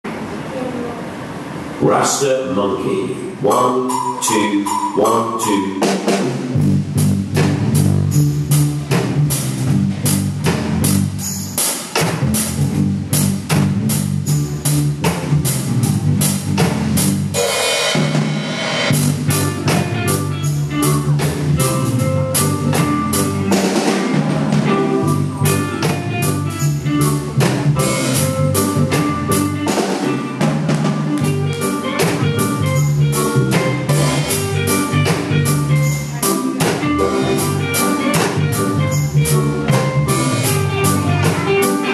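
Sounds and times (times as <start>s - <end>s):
cymbal ringing: 3.5s - 6.3s
backing music with bass line: 3.5s - 41.9s
drum kit groove: 3.9s - 41.9s.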